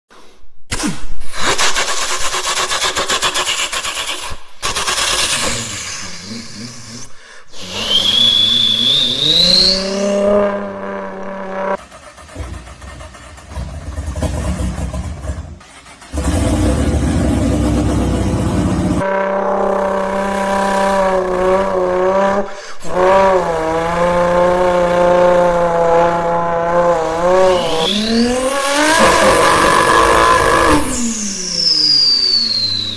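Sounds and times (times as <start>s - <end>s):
man imitating engine with voice: 5.2s - 10.2s, 28.5s - 31.1s
car engine rumble: 8.8s - 31.9s.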